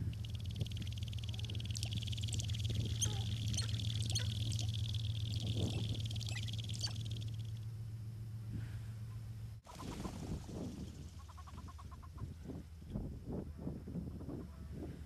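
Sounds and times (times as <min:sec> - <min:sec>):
buzzy high rattle: 0:00.0 - 0:07.6
grouse chirping and clucking: 0:00.0 - 0:07.6, 0:09.7 - 0:12.3
steady low hum: 0:00.0 - 0:15.0.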